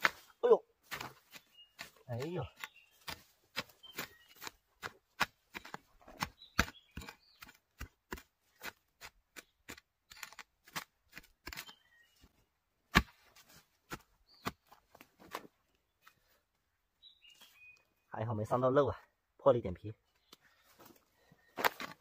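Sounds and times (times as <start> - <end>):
hoe striking soil: 0.0 - 12.0, 12.9 - 15.5
dirt scraping: 0.0 - 12.3, 12.9 - 16.4, 20.6 - 22.0.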